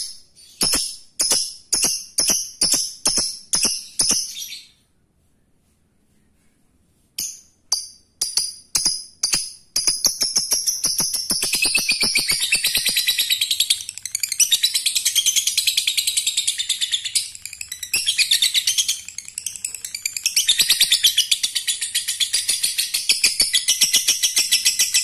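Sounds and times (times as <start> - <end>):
lovebird chattering: 9.2 - 24.9.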